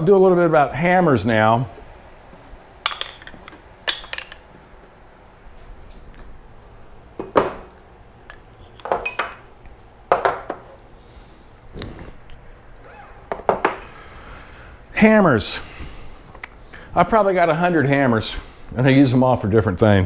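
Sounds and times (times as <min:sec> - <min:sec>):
metal tools clinking on wood: 0:02.9 - 0:04.6, 0:08.8 - 0:09.9.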